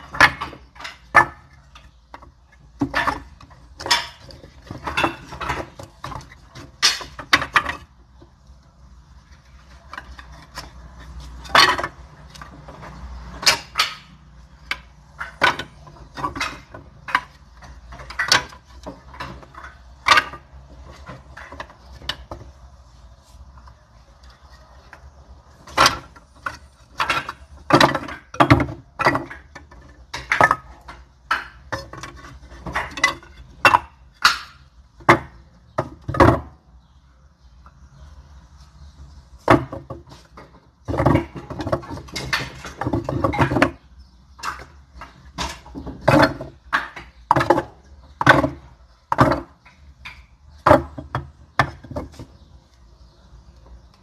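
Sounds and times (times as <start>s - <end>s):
firewood pieces knocking together: 0.0s - 8.6s, 9.4s - 22.6s, 24.4s - 36.6s, 39.4s - 52.5s.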